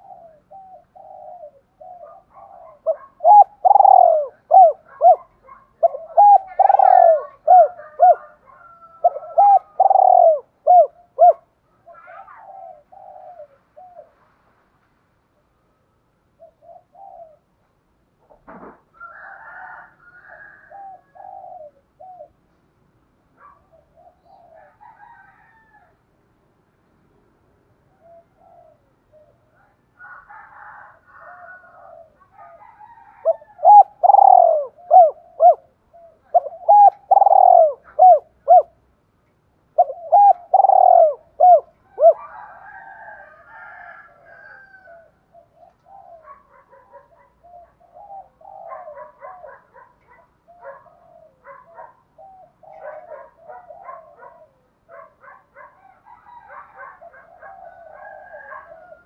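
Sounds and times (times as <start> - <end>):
dove cooing: 0.0 - 14.3, 16.4 - 17.6, 18.2 - 22.4, 23.4 - 25.8, 27.9 - 38.9, 39.7 - 59.0
faint bird calls: 0.0 - 14.5, 27.8 - 38.8, 39.7 - 43.4, 44.2 - 59.0.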